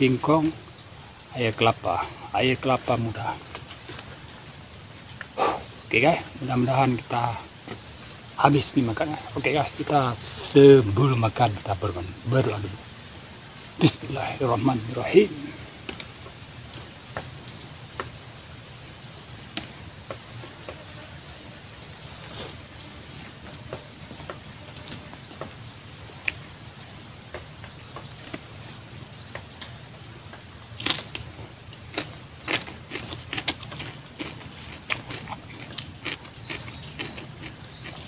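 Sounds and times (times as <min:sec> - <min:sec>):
high insect drone: 0:00.0 - 0:38.0
eating by hand clicks and smacks: 0:30.8 - 0:38.0.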